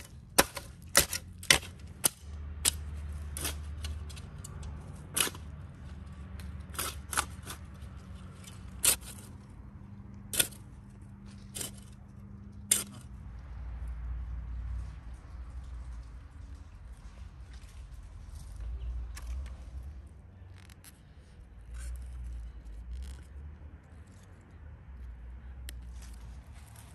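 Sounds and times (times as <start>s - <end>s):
spade digging into dry soil: 0.0s - 13.2s.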